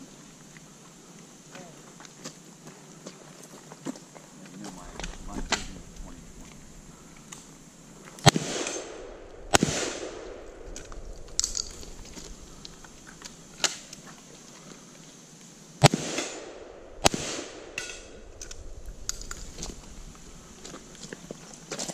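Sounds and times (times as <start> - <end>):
rifle shots with echo: 8.2 - 12.7, 15.8 - 19.8.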